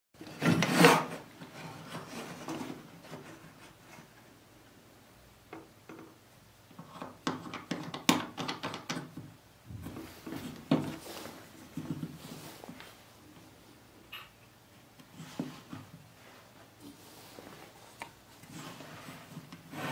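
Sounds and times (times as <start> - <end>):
blade scraping wood: 0.4 - 1.2.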